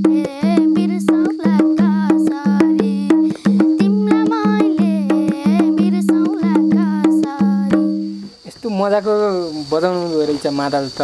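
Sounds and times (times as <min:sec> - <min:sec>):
boy singing folk song: 0:00.0 - 0:08.3
hand drum strokes: 0:00.0 - 0:08.3.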